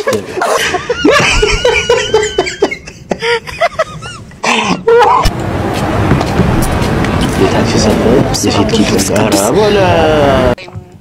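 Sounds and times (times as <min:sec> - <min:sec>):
high-pitched laughter: 0:00.0 - 0:05.3.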